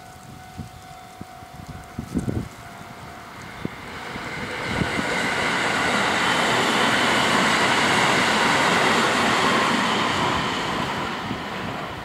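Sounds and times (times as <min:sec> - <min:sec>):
crossing alarm bells ringing: 0:00.0 - 0:06.9
electric train passing: 0:00.0 - 0:12.0.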